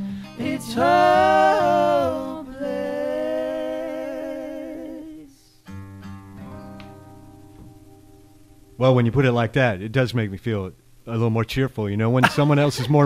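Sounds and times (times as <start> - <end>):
person singing with vibrato: 0.0 - 5.6
acoustic guitar chord ringing: 0.0 - 9.6.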